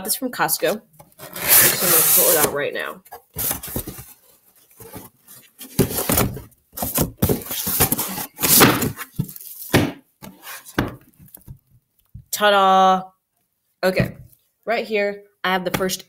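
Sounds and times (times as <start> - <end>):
cardboard box scraping and rustling: 1.1 - 9.4.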